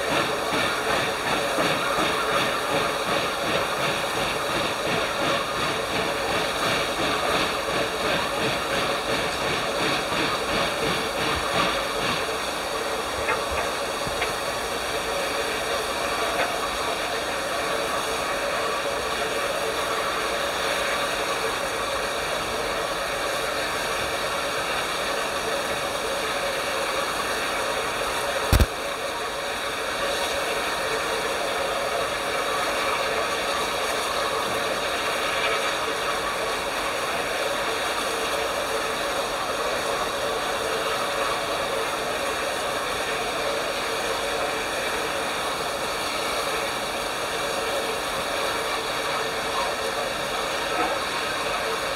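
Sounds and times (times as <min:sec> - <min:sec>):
steam hissing from locomotive: 0:00.0 - 0:51.9
sharp knock: 0:28.5 - 0:28.7.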